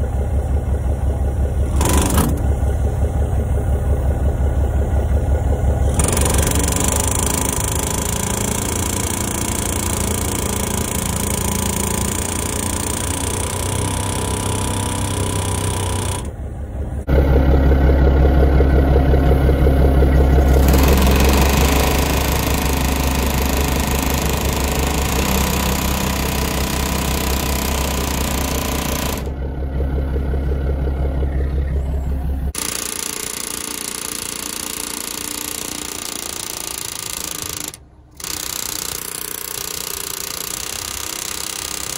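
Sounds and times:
pneumatic air hammer rattling: 1.6 - 2.6, 5.8 - 16.4, 20.3 - 29.3, 32.5 - 41.9.

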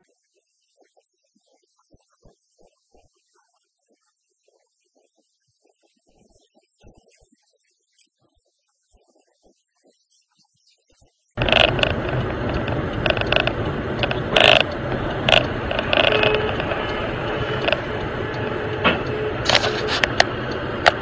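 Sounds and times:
interior rattle clicks: 11.4 - 21.0
road and engine rumble: 11.4 - 21.0.

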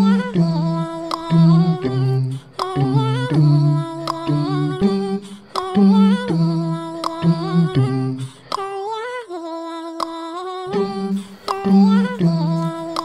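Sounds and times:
low bass line: 0.0 - 8.3, 11.7 - 12.9
hummed vocal melody: 0.0 - 13.0.

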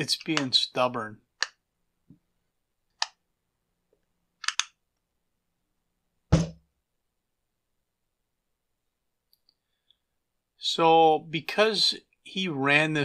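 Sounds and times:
heavy thump on bench: 6.3 - 6.6.

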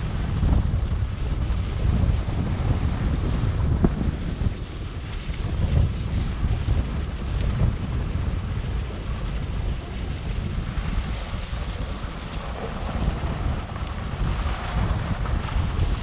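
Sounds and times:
wind buffeting microphone: 0.0 - 16.0
skis sliding over snow: 11.1 - 16.0.

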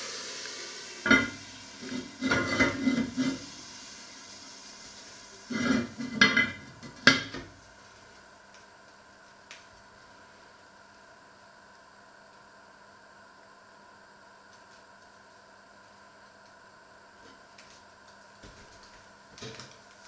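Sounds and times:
steam hissing: 0.0 - 6.3.

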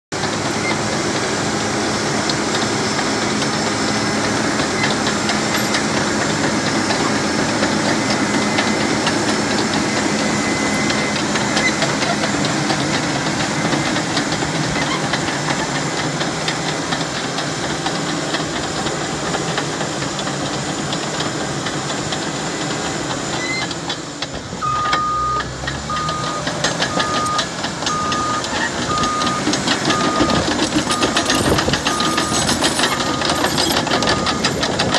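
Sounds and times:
diesel engine running: 0.1 - 34.9
tracks clanking: 0.2 - 34.9
backup alarm beeping: 24.6 - 33.4, 34.0 - 34.6.

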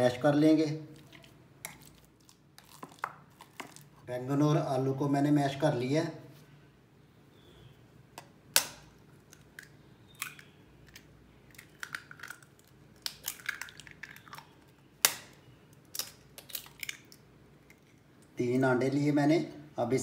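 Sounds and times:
eggshell crackling: 0.9 - 4.0, 8.6 - 18.4
egg cracking on bowl rim: 8.2 - 18.0.

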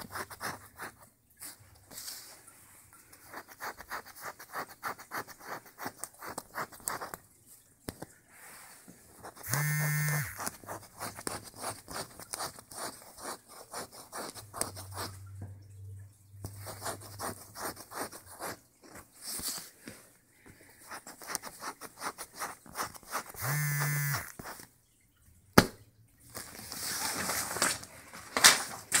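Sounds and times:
bird clicking and scratching paper: 0.0 - 1.0, 3.1 - 7.2, 10.2 - 15.2, 20.9 - 23.4
short loud buzzes: 9.5 - 10.4, 23.4 - 24.3.

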